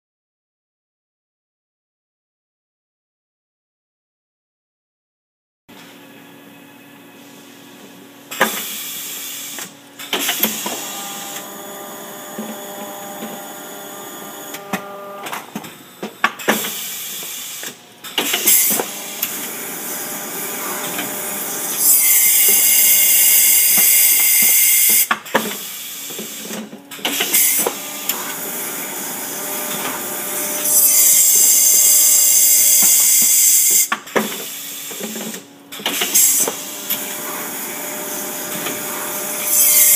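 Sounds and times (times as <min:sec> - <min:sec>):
steady machine hum: 0:10.6 - 0:16.2, 0:18.8 - 0:21.8.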